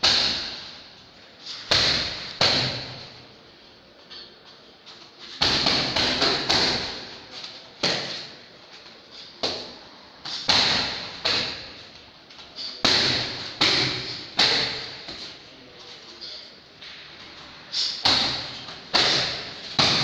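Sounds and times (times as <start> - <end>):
kicks thudding on punching bag: 12.8 - 15.3, 18.1 - 20.0.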